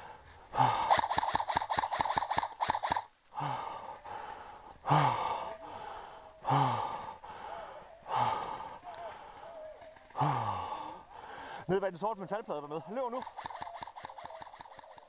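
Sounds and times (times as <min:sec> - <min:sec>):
person breathing hard: 0:00.0 - 0:01.5, 0:03.2 - 0:11.7
airsoft gun shots: 0:00.9 - 0:03.0.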